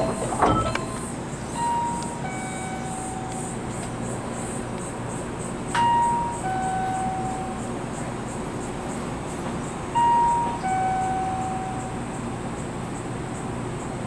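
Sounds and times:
insects buzzing: 0:00.0 - 0:14.0.

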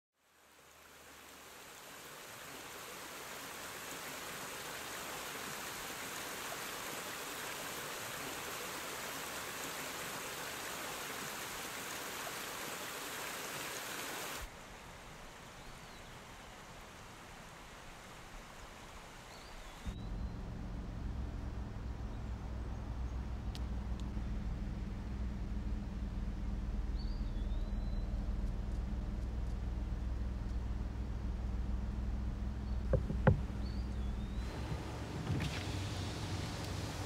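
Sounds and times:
stream rushing over stones: 0:00.3 - 0:20.0
high bird chirps: 0:26.9 - 0:28.4.

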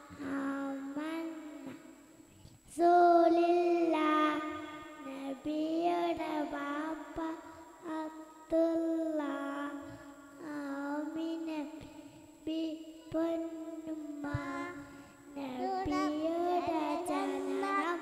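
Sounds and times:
children singing together: 0:00.0 - 0:01.8, 0:12.6 - 0:18.0.

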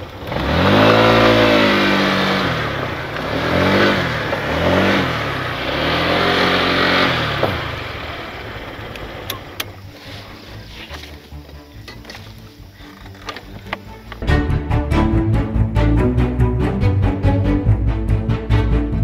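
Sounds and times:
small motorcycle engine revving: 0:00.0 - 0:13.7.

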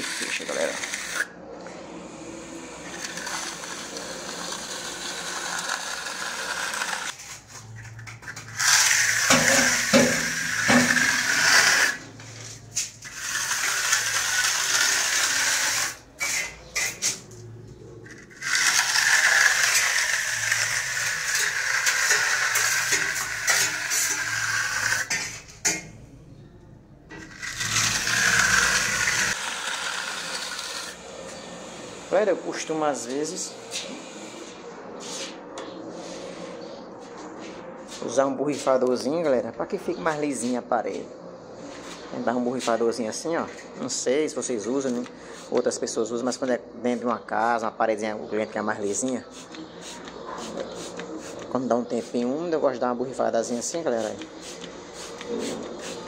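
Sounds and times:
steel trowel scraping wall coating: 0:00.0 - 0:01.3, 0:02.8 - 0:17.4, 0:18.0 - 0:25.9, 0:27.1 - 0:34.4, 0:54.0 - 0:56.0.

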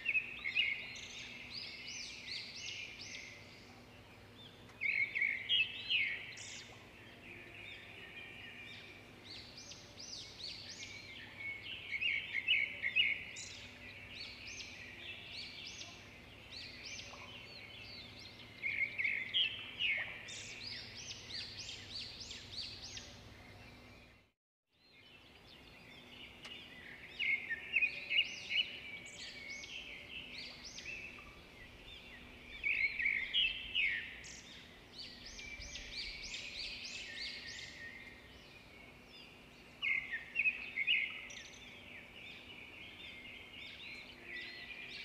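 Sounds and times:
small birds chirping: 0:00.0 - 0:45.0.

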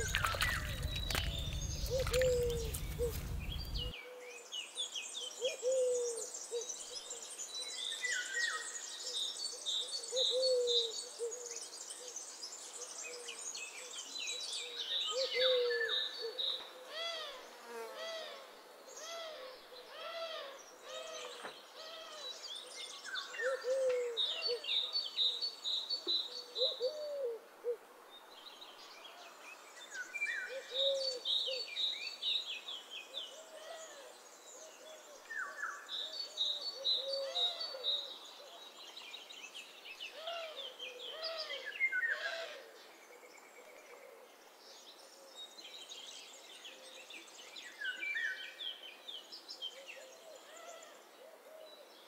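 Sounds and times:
birds chirping: 0:00.0 - 0:03.9
low hooting bird calls: 0:00.0 - 0:04.2.

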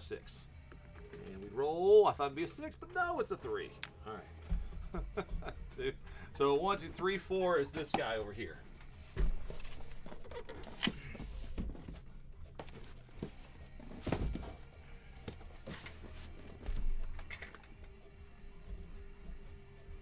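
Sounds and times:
cardboard box thumps: 0:12.6 - 0:14.6.

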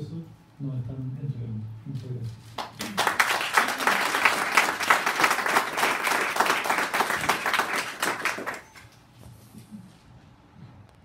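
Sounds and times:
audience applause: 0:02.6 - 0:08.8.

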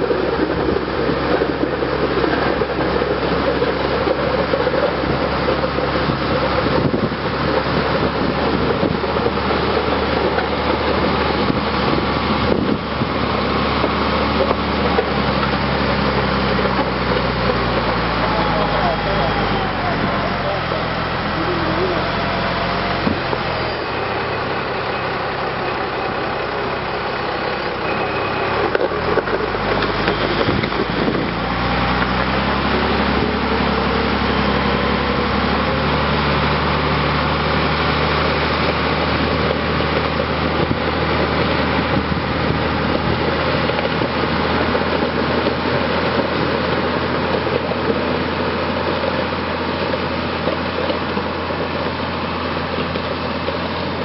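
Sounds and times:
gravel scraping: 0:00.0 - 0:36.4
diesel engine running: 0:00.0 - 0:54.0.

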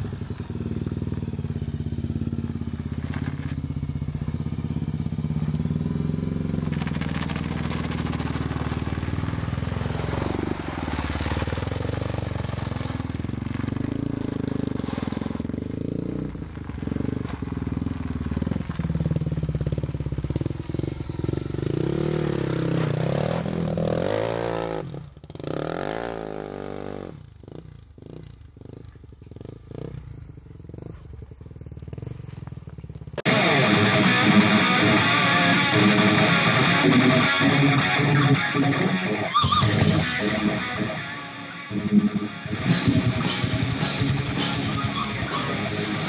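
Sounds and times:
quad engine revving: 0:00.0 - 0:17.3, 0:21.2 - 0:27.1, 0:33.2 - 0:46.0
guitar rock music: 0:33.2 - 0:46.0.

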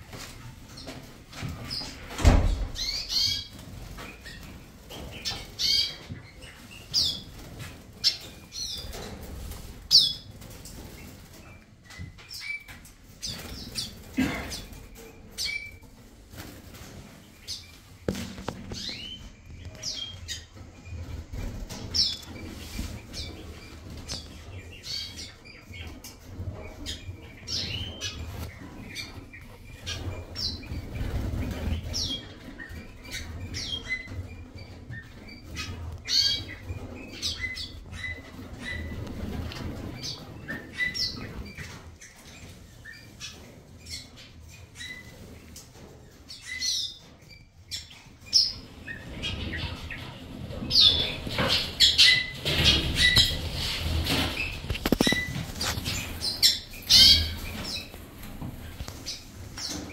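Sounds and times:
small birds chirping: 0:00.2 - 0:59.9
wings fluttering: 0:48.9 - 0:59.9.

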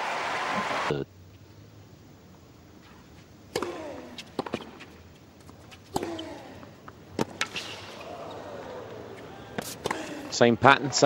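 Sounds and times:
tennis ball bouncing: 0:02.9 - 0:10.4
tennis ball hit by racket: 0:03.5 - 0:04.9, 0:05.7 - 0:06.4, 0:07.2 - 0:08.3, 0:09.1 - 0:10.4
player grunting: 0:03.6 - 0:04.2, 0:06.0 - 0:06.7, 0:08.0 - 0:10.4.

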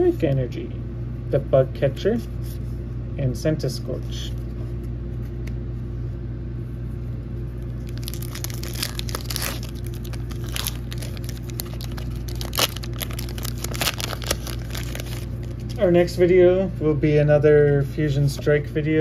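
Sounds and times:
steady low hum: 0:00.0 - 0:19.0
foil wrapper crinkling and tearing: 0:07.6 - 0:15.8.

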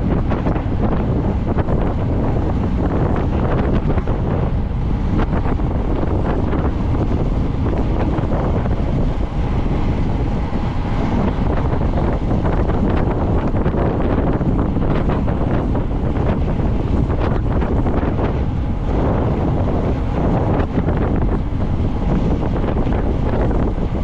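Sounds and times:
wind buffeting microphone: 0:00.0 - 0:24.0.

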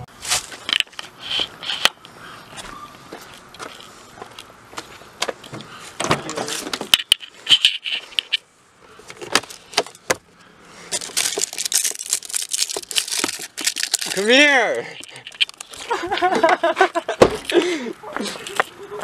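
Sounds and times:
papers rustling: 0:10.9 - 0:16.2.

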